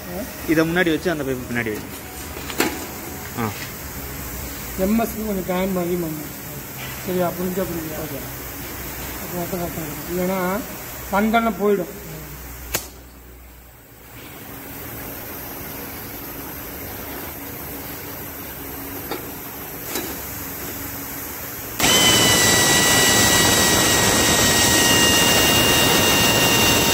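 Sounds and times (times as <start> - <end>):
pneumatic drill motor whining: 21.8 - 26.9.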